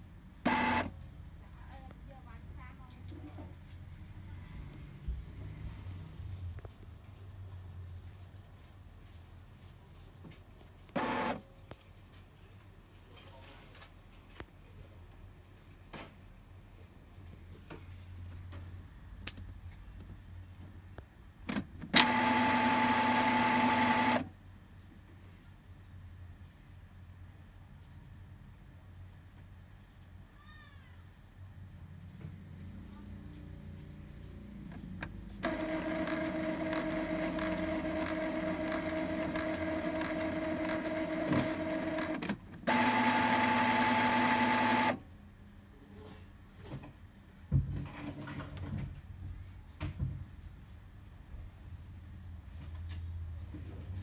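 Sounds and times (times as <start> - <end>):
printer motor running: 0.4 - 0.9, 10.9 - 11.4, 21.9 - 24.3, 35.4 - 45.0.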